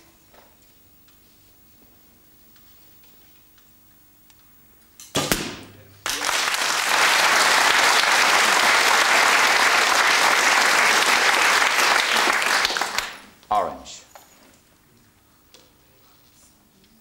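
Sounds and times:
studio audience applauding: 0:06.0 - 0:13.3.

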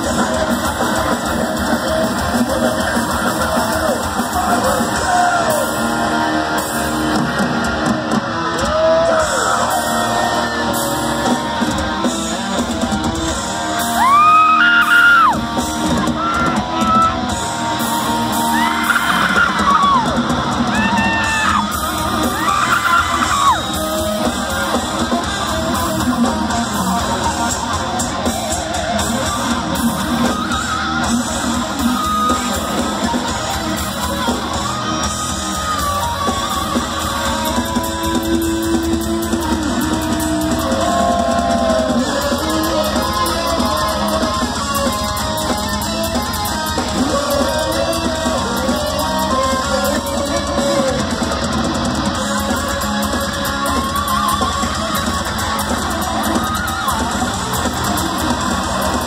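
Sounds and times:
thrash metal band playing: 0:00.0 - 0:59.0.

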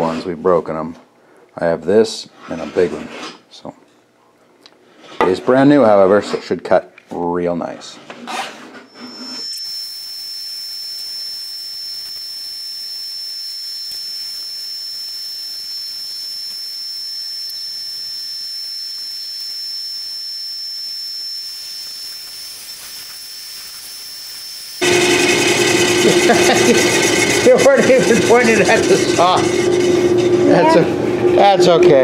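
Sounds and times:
bandsaw cutting wood: 0:08.3 - 0:31.5.

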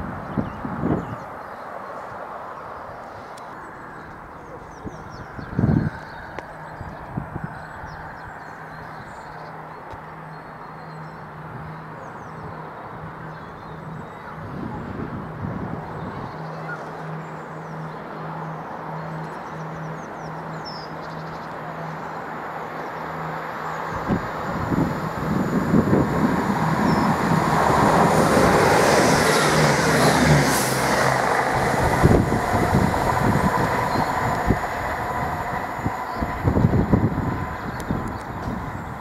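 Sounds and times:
diesel train engine rumble: 0:03.5 - 0:39.0.

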